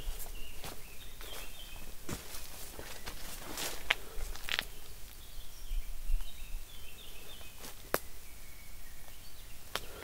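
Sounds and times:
small songbird twittering: 0.0s - 1.9s
footsteps crunching on trail: 0.0s - 5.3s, 7.2s - 8.0s.

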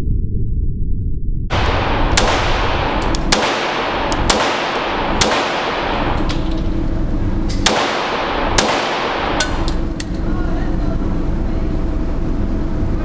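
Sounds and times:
pistol shots echoing indoors: 1.5s - 10.2s.

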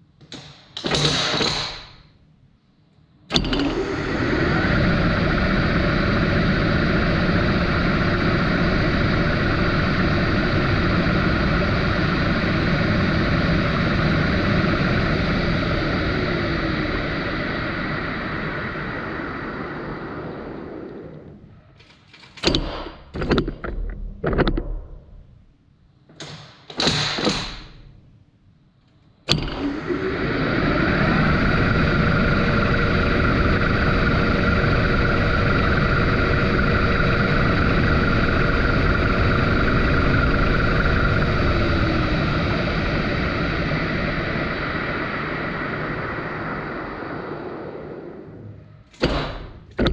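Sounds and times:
metal lathe running: 3.3s - 20.8s, 29.3s - 47.1s
clunks and knocks: 22.4s - 25.1s.

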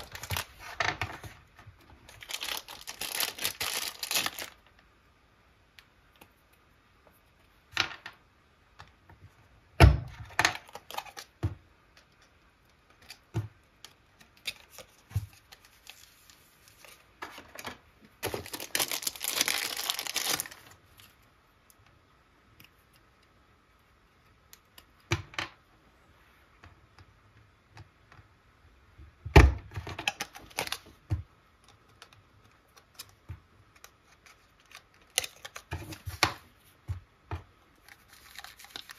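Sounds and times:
plastic bags crinkling: 0.0s - 1.3s, 2.0s - 4.7s, 14.4s - 20.8s, 30.0s - 31.0s, 37.8s - 38.9s.

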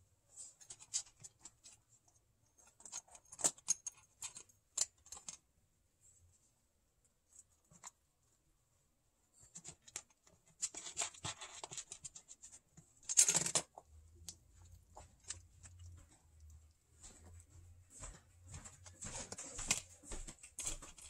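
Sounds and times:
kittens' claws scratching paper: 9.5s - 17.4s.

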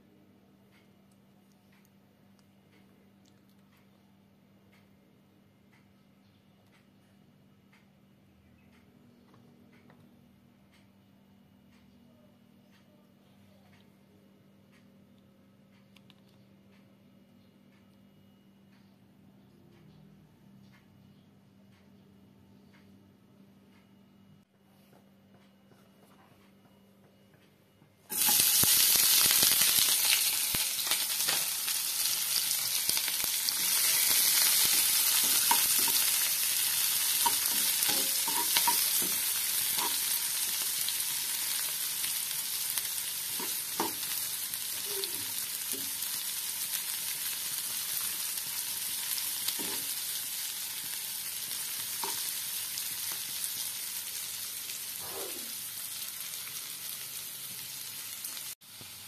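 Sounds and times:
vegetables sizzling in hot oil: 28.1s - 59.0s
spatula clicking and scraping: 33.6s - 40.2s.

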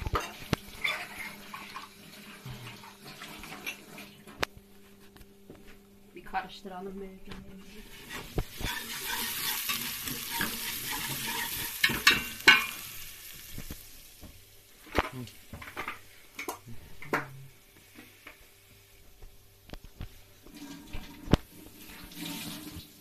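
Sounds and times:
whisk scraping a pot: 0.0s - 2.4s, 7.9s - 12.6s
lentils sizzling in a pot: 0.0s - 4.2s, 7.6s - 23.0s.

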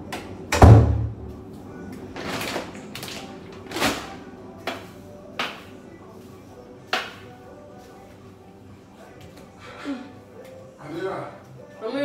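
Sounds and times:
loud thump: 0.6s - 1.3s.

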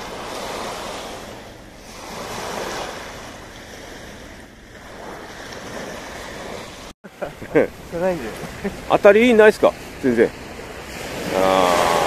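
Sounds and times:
sea waves breaking on pebbles: 0.0s - 6.9s.

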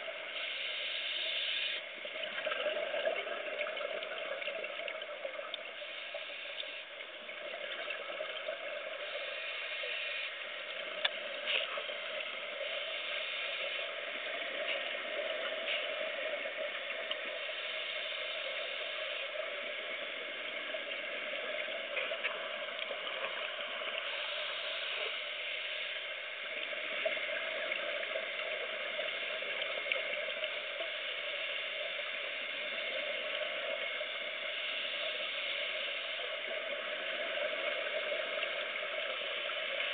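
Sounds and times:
muffled wash of water: 0.0s - 39.9s
gurgle of exhaled bubbles: 2.1s - 5.6s.

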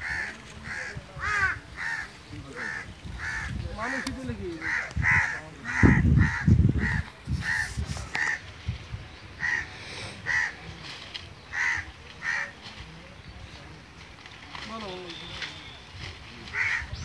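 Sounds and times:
crows cawing: 0.0s - 8.5s, 9.4s - 10.8s, 11.5s - 12.6s, 16.5s - 17.0s.

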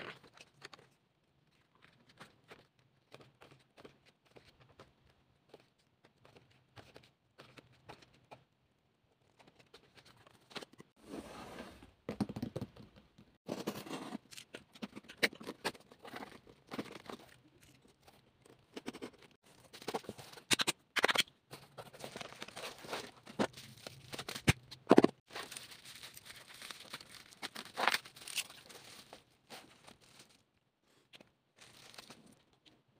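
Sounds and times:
paper and cardboard rustling: 21.5s - 30.5s.

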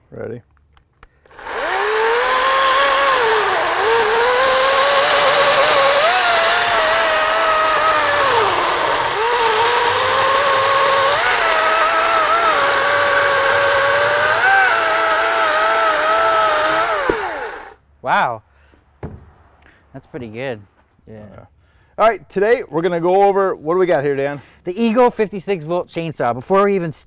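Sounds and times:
electric chainsaw cutting log: 1.2s - 17.8s.

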